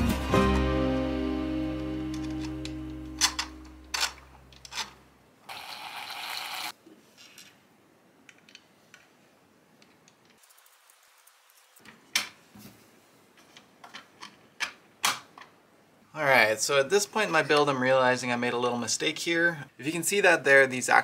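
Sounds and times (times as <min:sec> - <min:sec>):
plastic parts handled: 0:02.1 - 0:05.0.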